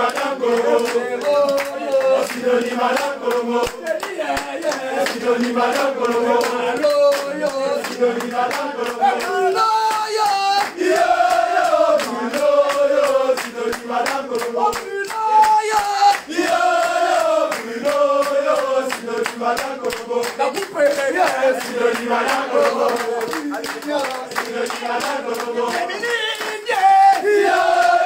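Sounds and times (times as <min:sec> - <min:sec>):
men singing a chant: 0:00.0 - 0:28.0.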